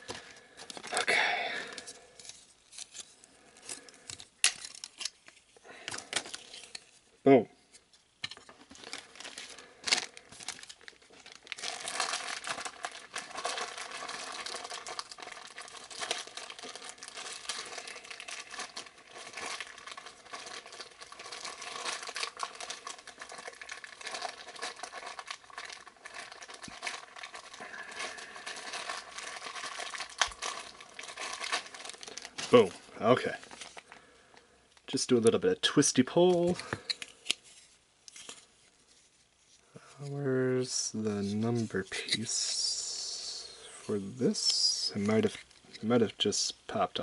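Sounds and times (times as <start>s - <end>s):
packaging crinkling: 0.0s - 7.0s, 8.3s - 35.0s, 44.2s - 46.1s.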